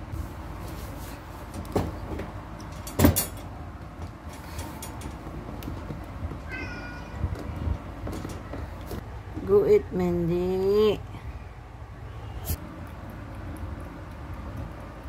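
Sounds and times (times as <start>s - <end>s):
cat meowing: 6.5s - 7.3s.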